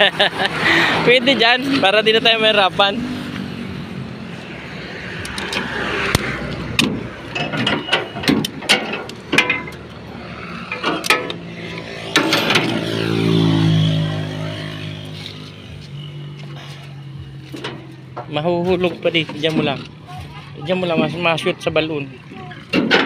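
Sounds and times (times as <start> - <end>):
vehicle engine passing: 0.0 - 7.4, 9.7 - 22.4
knocks and metal clanks: 5.4 - 14.9, 17.4 - 20.0, 22.6 - 23.0.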